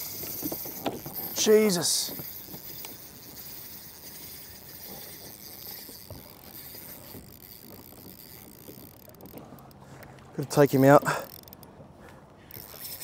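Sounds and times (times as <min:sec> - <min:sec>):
steady water hiss: 0:00.0 - 0:07.2
water lapping against kayak hull: 0:00.0 - 0:13.0.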